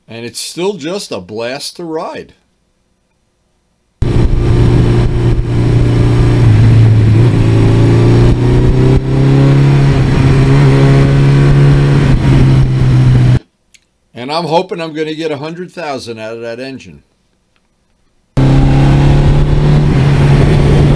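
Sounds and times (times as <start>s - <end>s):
wind rush on microphone: 4.0s - 7.6s, 18.5s - 20.9s
motorcycle engine running: 4.0s - 13.4s.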